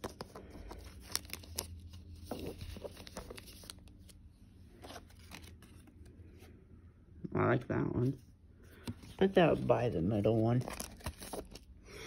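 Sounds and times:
trading cards rustling: 0.0s - 6.2s, 8.8s - 11.7s.

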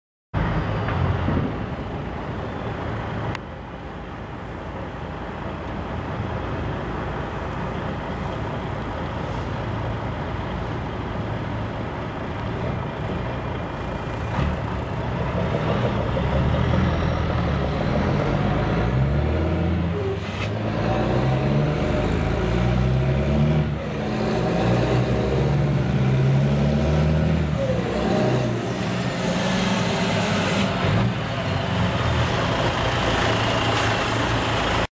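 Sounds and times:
truck diesel engines revving: 0.4s - 34.9s.

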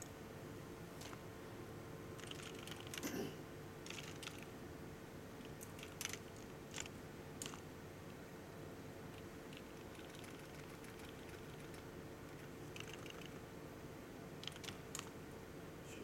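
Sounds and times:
steady low hum: 0.0s - 16.0s
computer keyboard typing: 2.2s - 3.1s, 3.8s - 4.5s, 5.4s - 7.6s, 9.1s - 13.4s, 14.4s - 15.1s.

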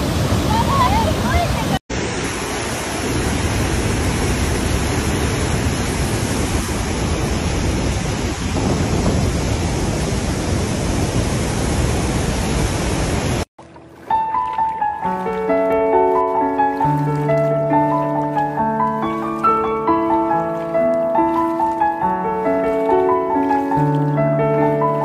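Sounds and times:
waterfall rushing: 0.0s - 25.0s
piano music: 13.6s - 25.0s.

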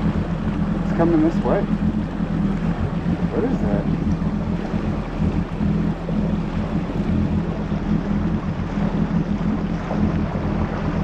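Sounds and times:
jet ski engine low hum: 0.0s - 11.0s
wind buffeting microphone: 0.0s - 11.0s.

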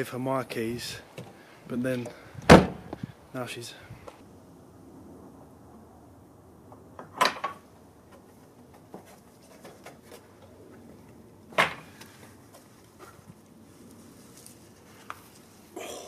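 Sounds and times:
light taps and scuffs on paving: 8.1s - 11.2s, 11.8s - 15.6s.

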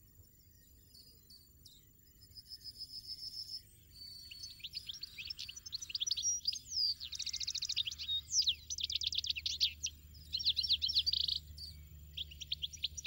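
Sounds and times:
goldfinch twittering: 4.0s - 13.0s.

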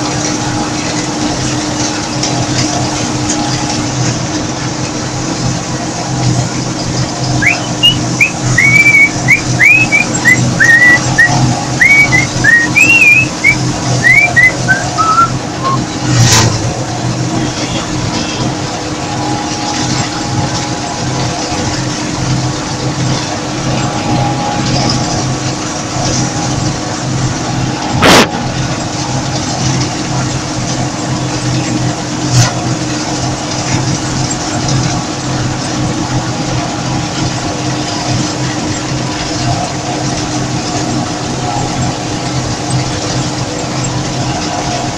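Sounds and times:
combine harvester drone: 0.0s - 44.9s
person whistling a tune: 7.4s - 15.8s.

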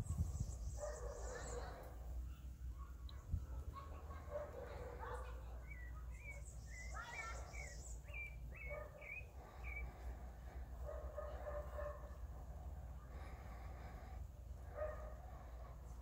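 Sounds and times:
bird chirping: 5.6s - 10.1s.

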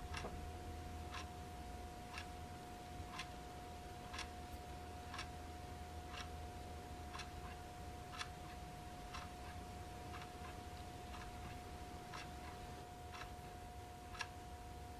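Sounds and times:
faint hum: 0.0s - 14.9s
wall clock ticking: 0.0s - 14.9s.

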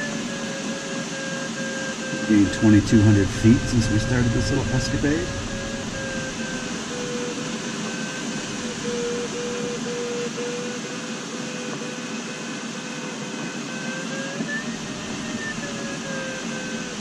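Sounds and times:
airflow rushing past canopy: 2.1s - 10.6s.

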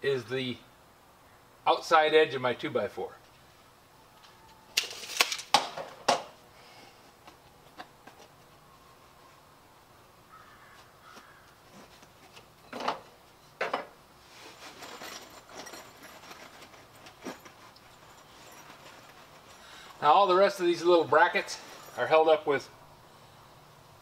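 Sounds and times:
tape measure snapping back: 4.8s - 5.6s
metal clinks: 14.6s - 20.0s, 21.4s - 22.2s.

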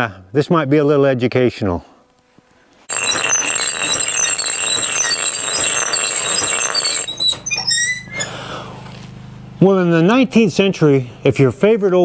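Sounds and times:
steel grinding on stone wheel: 2.9s - 7.3s.

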